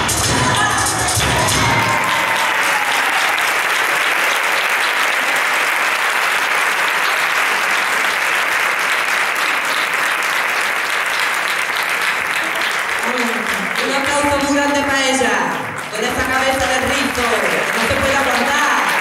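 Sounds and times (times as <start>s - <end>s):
flamenco music: 0.0s - 3.4s, 11.6s - 19.0s
audience applauding: 0.0s - 19.0s.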